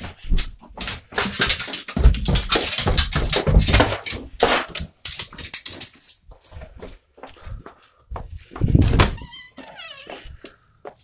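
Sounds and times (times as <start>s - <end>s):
heavy thumps: 8.2s - 9.3s.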